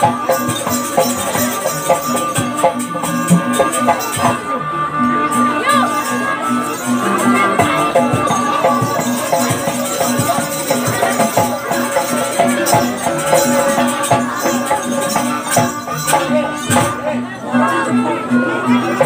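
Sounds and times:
percussion ensemble drumming: 0:00.0 - 0:04.5, 0:06.7 - 0:17.0
sustained melody: 0:00.0 - 0:19.0.

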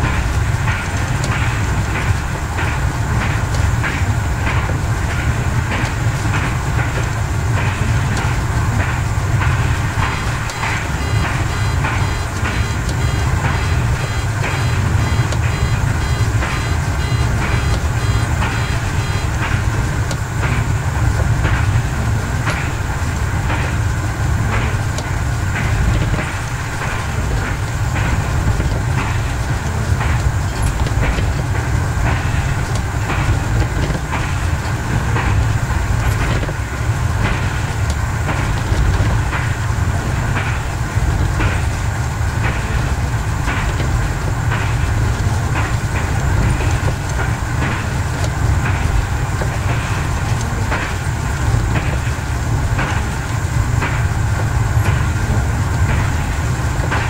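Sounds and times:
diesel engine drone: 0:00.0 - 0:57.0
wheels clicking over rail joints: 0:00.0 - 0:57.0
rapid high beeping: 0:10.2 - 0:19.5.

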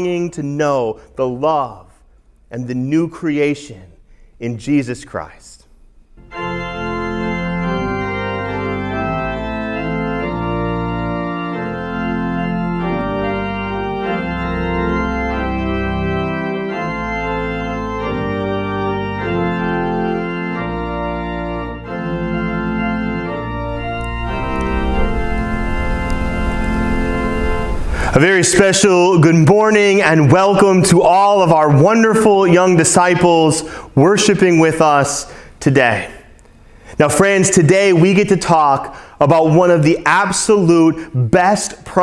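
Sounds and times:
organ chords: 0:00.0 - 0:03.7, 0:04.4 - 0:42.0
deep sustained bass line: 0:22.9 - 0:28.2.

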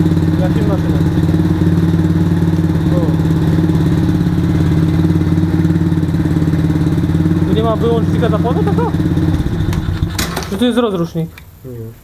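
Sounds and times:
atv engine idling: 0:00.0 - 0:11.1.

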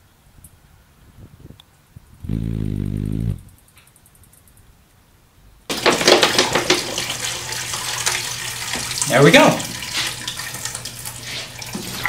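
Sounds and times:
hummingbird wings humming: 0:02.0 - 0:04.6.

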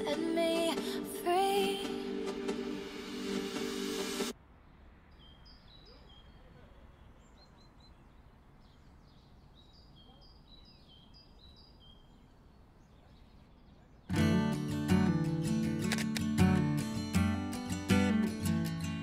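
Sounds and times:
music: 0:00.0 - 0:04.3, 0:14.1 - 0:19.0
low background noise: 0:04.3 - 0:14.2
songbirds chirping: 0:04.5 - 0:16.4.

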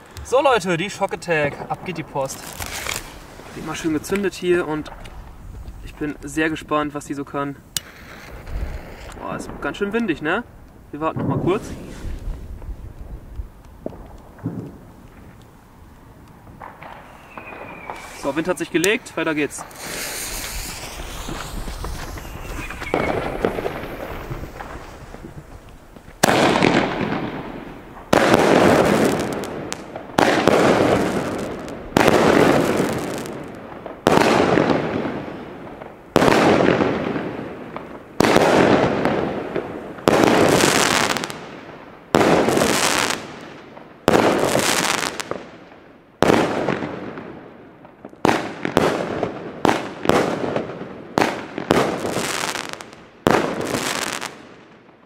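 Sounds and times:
firework battery bangs: 0:07.7 - 0:09.8, 0:16.5 - 0:35.1.

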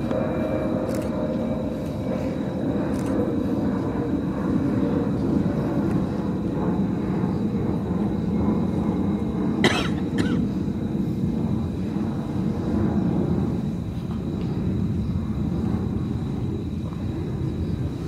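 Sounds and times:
low outdoor rumble: 0:00.0 - 0:18.0
person coughing: 0:09.6 - 0:10.5.

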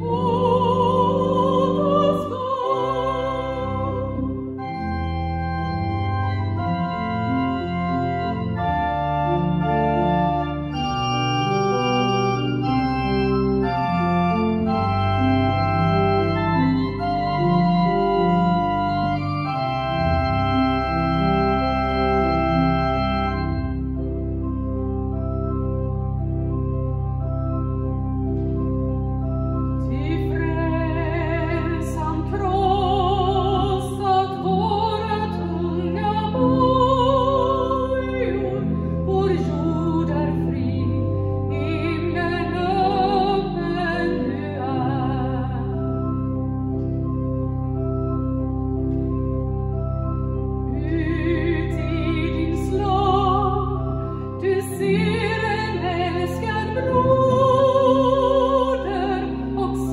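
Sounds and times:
woman singing with vibrato: 0:00.0 - 0:04.3, 0:29.9 - 0:45.7, 0:50.8 - 0:53.8, 0:54.4 - 0:59.9
pipe organ playing chords: 0:00.0 - 0:59.9.

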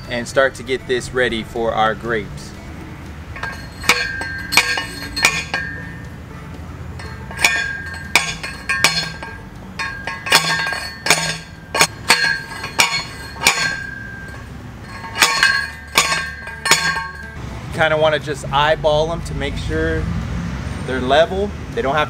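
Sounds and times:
post driver clanking on metal post: 0:03.4 - 0:05.9, 0:07.0 - 0:17.4.

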